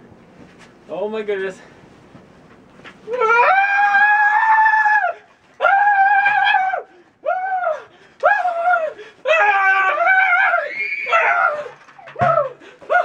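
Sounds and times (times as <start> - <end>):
people screaming: 3.1 - 13.0.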